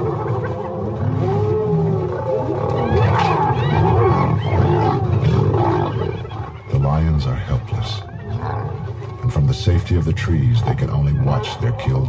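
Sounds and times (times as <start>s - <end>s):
hyenas whooping and giggling: 0.0s - 9.3s
lions growling: 0.0s - 12.0s.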